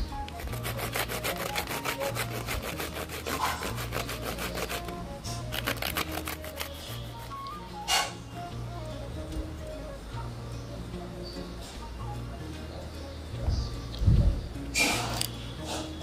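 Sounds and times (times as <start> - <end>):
soft background music: 0.0 - 16.0
vegetable rasping on grater: 0.4 - 7.3.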